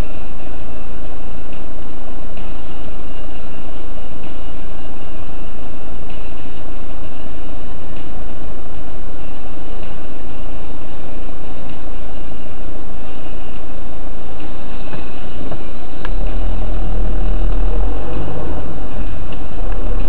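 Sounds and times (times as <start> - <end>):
car engine and road noise: 13.1 - 20.0
heavy low rumble: 14.1 - 20.0.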